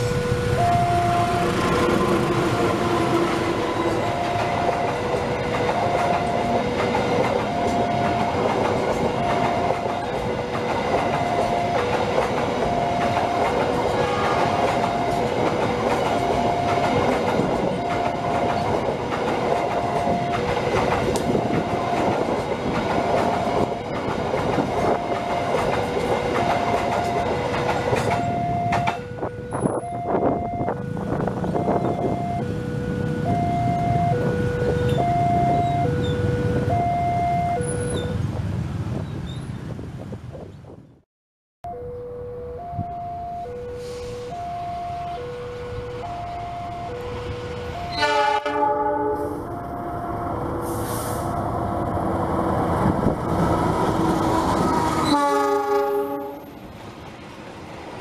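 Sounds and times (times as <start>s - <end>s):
two-tone crossing warning signal: 0.0s - 38.2s, 41.6s - 56.8s
diesel locomotive passing: 0.0s - 40.9s, 41.7s - 58.0s
train wheels clattering over rail joints: 1.6s - 29.0s.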